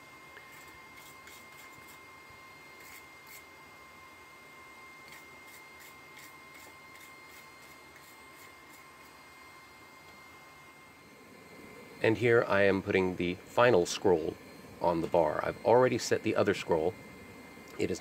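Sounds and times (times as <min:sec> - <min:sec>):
wire brush scrubbing metal: 0:00.4 - 0:02.0, 0:02.8 - 0:03.5, 0:05.1 - 0:09.1.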